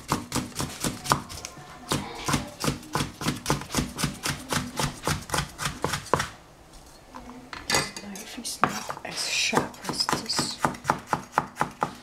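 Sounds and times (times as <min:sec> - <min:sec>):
cleaver chopping on plastic board: 0:09.6 - 0:12.0.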